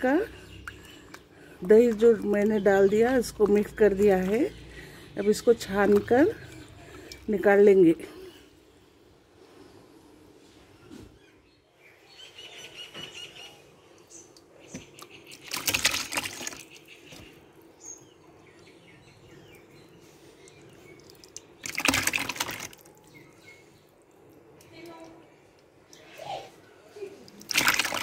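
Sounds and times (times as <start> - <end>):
liquid slurry splashing: 14.8 - 16.8, 20.4 - 23.2, 27.2 - 28.0.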